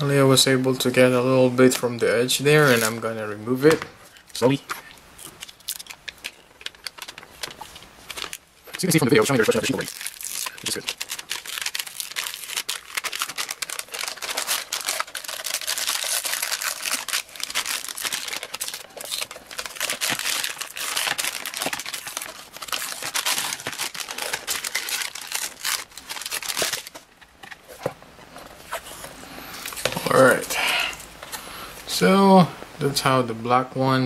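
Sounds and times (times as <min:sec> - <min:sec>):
masking paper peeling off: 0:05.2 - 0:27.1.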